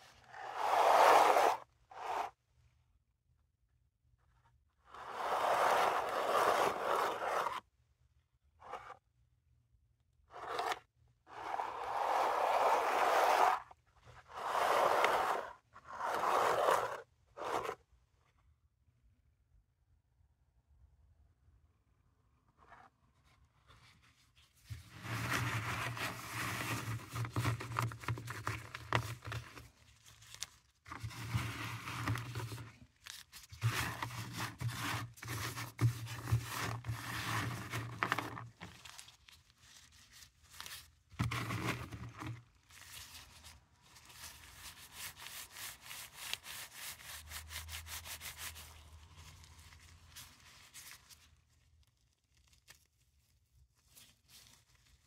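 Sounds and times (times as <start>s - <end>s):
tablets scraping and clicking in box: 14.4s - 17.8s, 24.9s - 29.7s, 30.4s - 32.8s, 33.5s - 38.9s, 41.2s - 42.4s.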